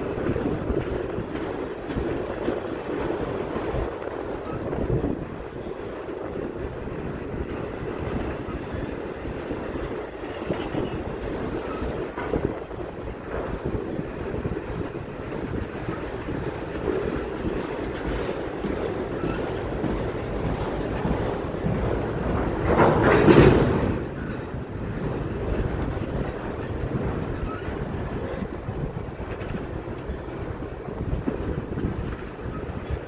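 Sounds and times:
freight train wheels rumbling: 0:00.0 - 0:33.0
wheels clacking over rail joints: 0:00.0 - 0:33.0.

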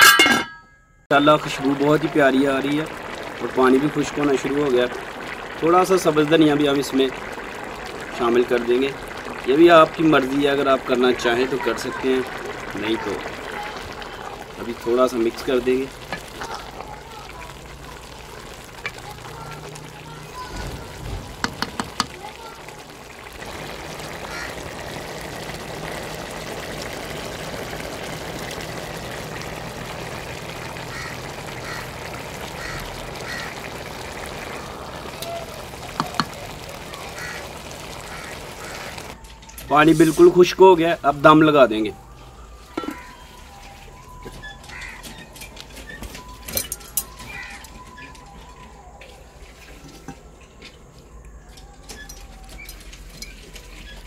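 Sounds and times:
pot boiling with bubbling hiss: 0:01.1 - 0:54.0.

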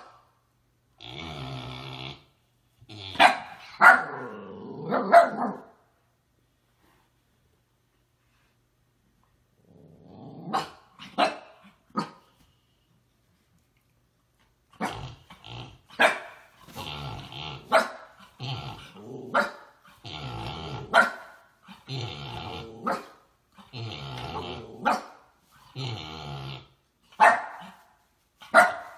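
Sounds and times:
dog growling: 0:01.0 - 0:05.6, 0:09.6 - 0:11.2, 0:14.8 - 0:26.9
dog barking: 0:03.2 - 0:04.3, 0:04.9 - 0:05.8, 0:10.5 - 0:12.2, 0:16.0 - 0:16.4, 0:17.7 - 0:18.1, 0:19.3 - 0:19.7, 0:20.9 - 0:21.4, 0:22.8 - 0:23.2, 0:24.8 - 0:25.2, 0:27.2 - 0:27.8, 0:28.5 - 0:28.9.

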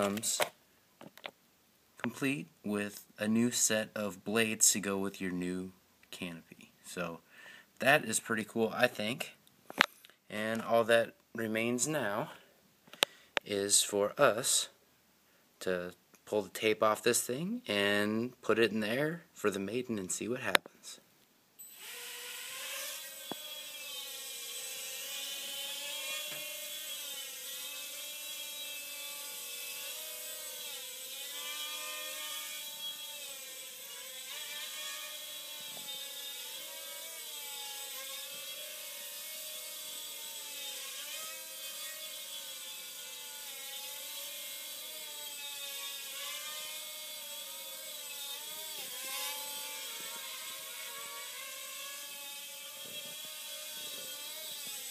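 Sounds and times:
quadcopter motors whining: 0:21.7 - 0:27.4.

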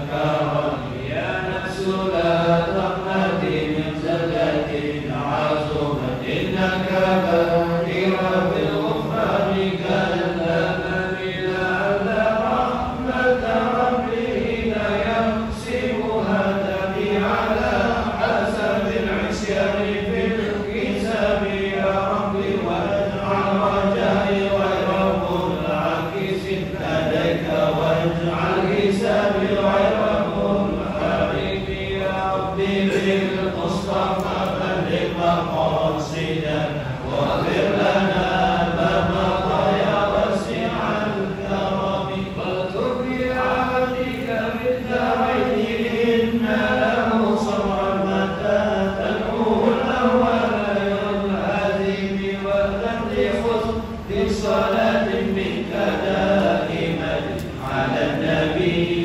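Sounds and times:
voices chanting: 0:00.0 - 0:59.0.

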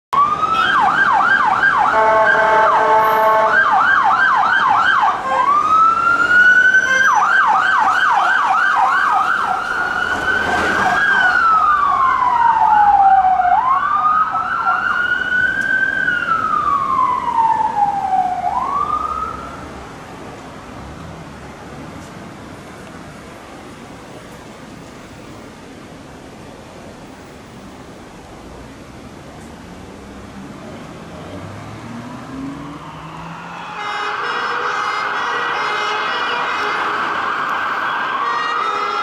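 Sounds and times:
siren wailing: 0:00.2 - 0:19.6, 0:31.8 - 0:39.0
bull horn blast: 0:01.9 - 0:03.6
second siren faintly: 0:31.6 - 0:34.6
siren yelping: 0:32.4 - 0:34.5, 0:36.1 - 0:38.6.

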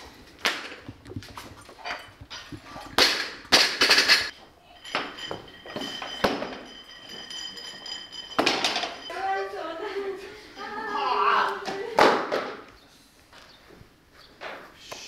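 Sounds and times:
barbell plates clanking: 0:00.8 - 0:09.3.

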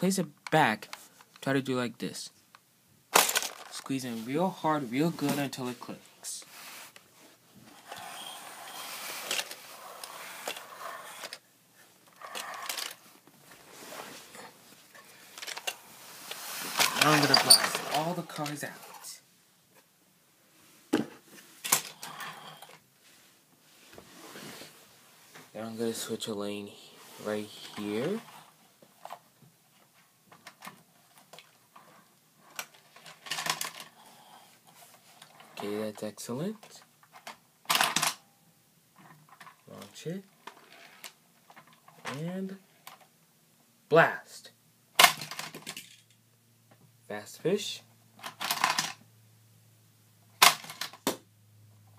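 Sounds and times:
plastic toy clicks and rattles: 0:03.2 - 0:03.8, 0:12.2 - 0:13.0, 0:15.4 - 0:15.8, 0:32.5 - 0:34.0, 0:48.2 - 0:49.0
plastic toy rubbing and scraping: 0:06.4 - 0:19.1, 0:21.7 - 0:22.8.

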